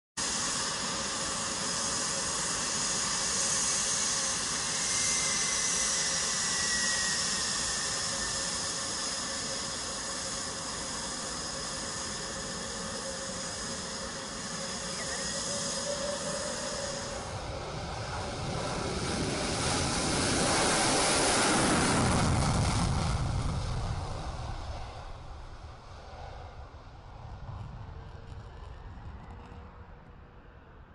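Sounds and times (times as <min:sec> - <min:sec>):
jet afterburner roar: 0:00.2 - 0:30.9
jet engines whining: 0:00.2 - 0:30.9.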